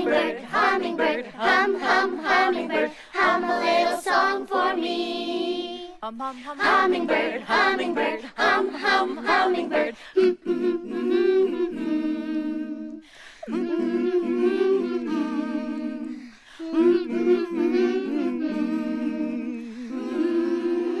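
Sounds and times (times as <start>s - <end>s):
women humming together: 10.2s - 21.0s.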